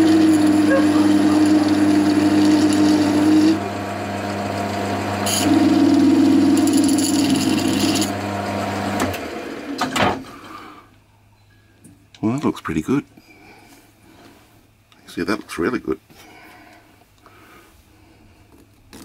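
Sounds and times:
saw blade buzzing whir: 0.0s - 9.7s
lathe motor hum: 0.0s - 9.8s.

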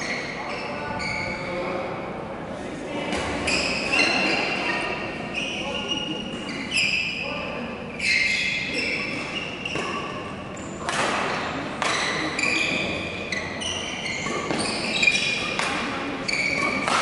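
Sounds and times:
shoes squeaking on court floor: 0.0s - 1.7s, 3.1s - 17.0s
racket hitting shuttlecock: 9.7s - 12.9s, 14.2s - 17.0s.

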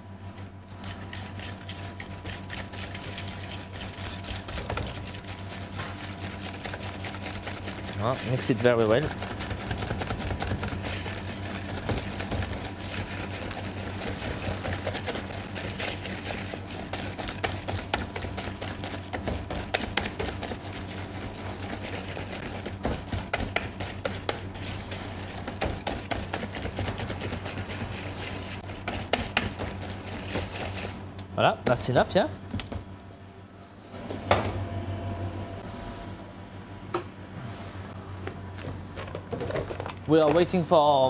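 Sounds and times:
steady low hum: 0.0s - 41.0s
whisk clicking against metal bowl: 0.8s - 30.9s.

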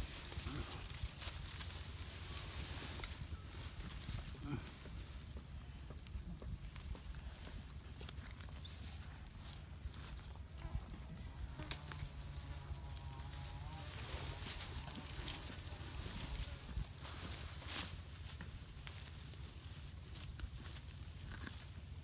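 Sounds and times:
insects chirring: 0.0s - 22.0s.

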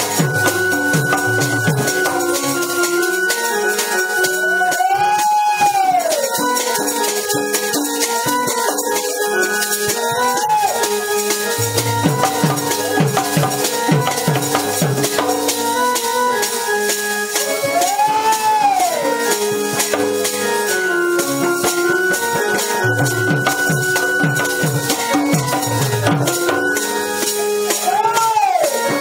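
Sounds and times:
hand drum beating: 0.0s - 16.2s, 21.1s - 27.0s
held melody with pitch bends: 0.0s - 29.0s.

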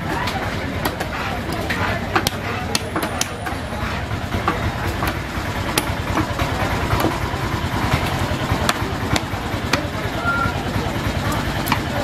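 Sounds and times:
engine idling: 0.0s - 12.0s.

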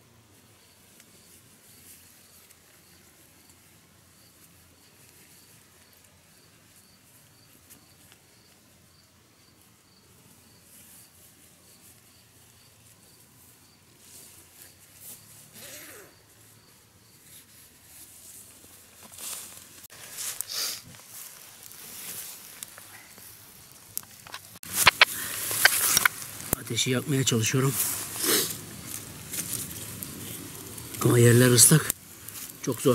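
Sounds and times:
footsteps through wet grass: 17.3s - 31.2s.

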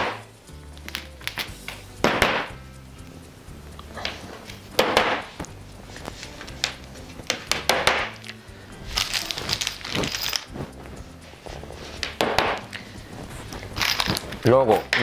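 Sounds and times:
background music: 0.0s - 15.0s
hammer tapping wooden dowels: 6.6s - 8.2s.

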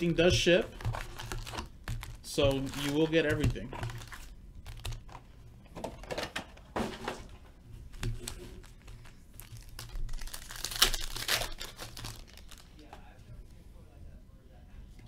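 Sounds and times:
cardboard rustling: 0.0s - 5.2s
foil packs crinkling: 0.0s - 5.2s, 8.0s - 13.0s
foil pack ripping: 0.8s - 3.2s, 9.4s - 12.9s.

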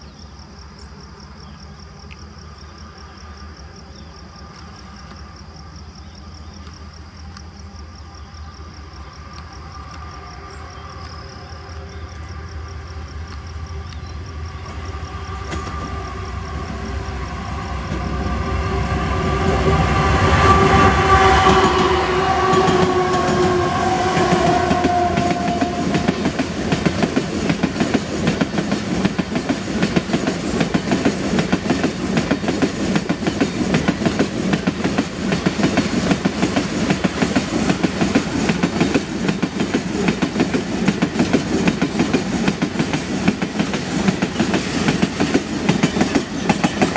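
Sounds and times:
locomotive droning: 1.2s - 46.9s
train wheels clickety-clack: 15.4s - 16.2s, 17.8s - 18.3s, 19.4s - 46.9s.

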